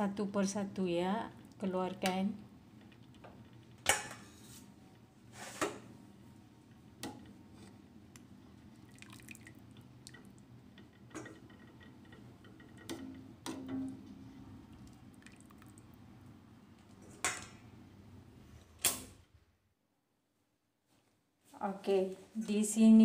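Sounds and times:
water splashing and dripping: 8.9 - 10.4, 14.8 - 15.8.

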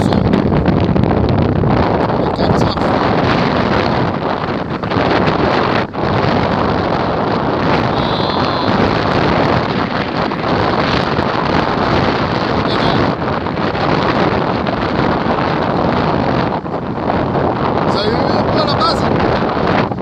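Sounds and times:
wind on microphone: 0.0 - 20.0.

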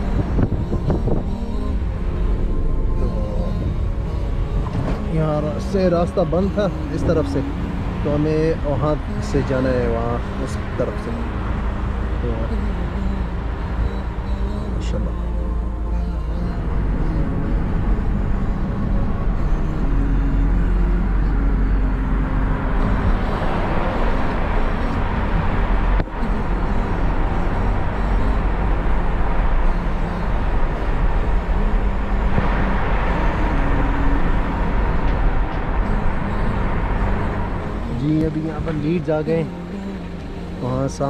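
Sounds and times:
car engine and tyres rumbling: 0.0 - 41.0.

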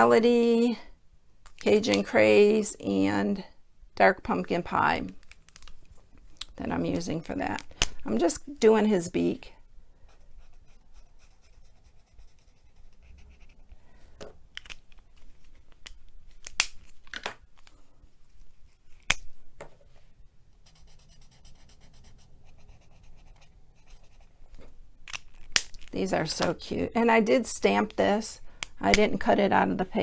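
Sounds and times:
markers scratching on paper: 10.4 - 13.6, 20.6 - 24.3.

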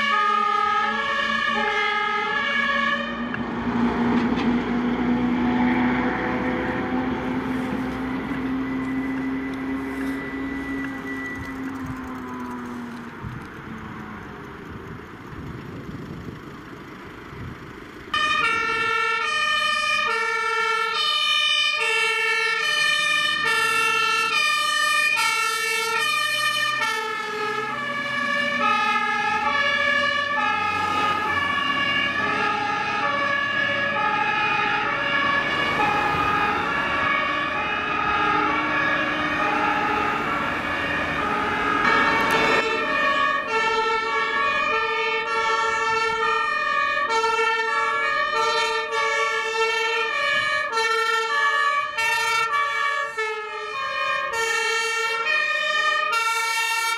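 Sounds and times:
two-tone fire engine siren: 0.0 - 14.3, 18.1 - 56.9
street noise: 0.0 - 56.9.

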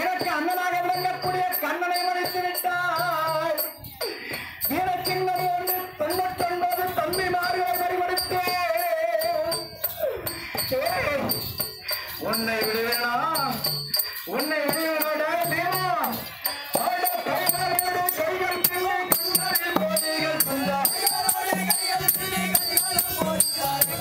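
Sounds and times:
jingling bells: 0.0 - 24.0
percussion strikes: 0.0 - 24.0.

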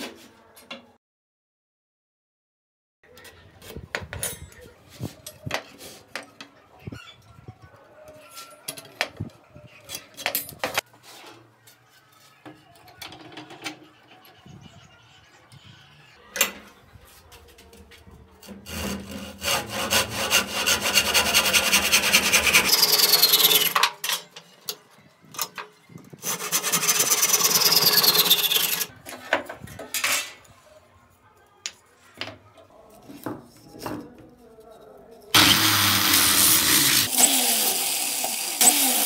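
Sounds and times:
hand saw cutting wood: 18.4 - 23.8, 26.2 - 28.9, 35.4 - 39.0.

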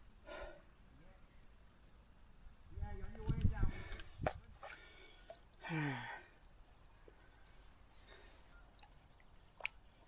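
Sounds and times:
man sighing: 5.6 - 6.4.

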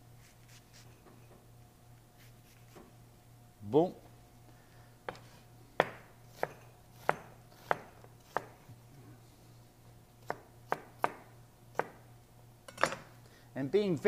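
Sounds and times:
knife chopping on plastic cutting board: 5.1 - 8.6.

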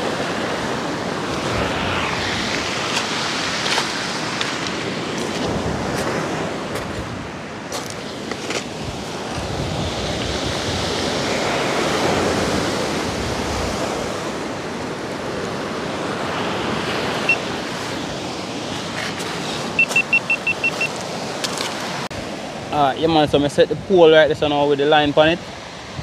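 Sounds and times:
surf breaking on pebble beach: 0.1 - 7.0
short high beeps: 19.8 - 21.0.

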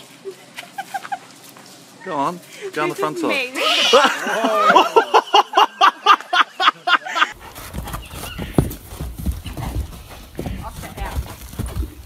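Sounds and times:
person laughing hard: 3.6 - 7.4
hoof thuds on dirt: 7.4 - 12.0.

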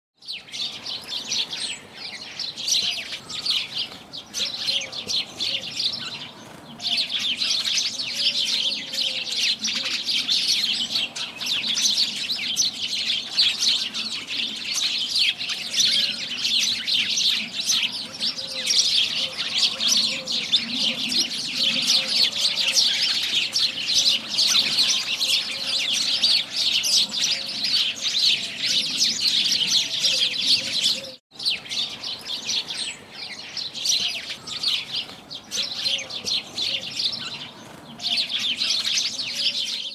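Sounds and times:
sparrows chirping: 0.2 - 39.9.

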